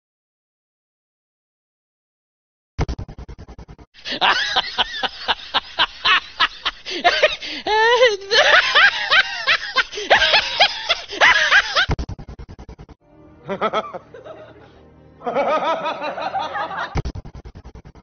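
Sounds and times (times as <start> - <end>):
high wavering laugh: 4.0 - 18.0
music: 13.0 - 18.0.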